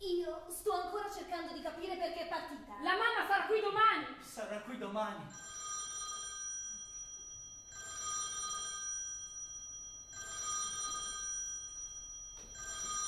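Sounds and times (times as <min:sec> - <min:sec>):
telephone ringing: 0:05.4 - 0:13.0.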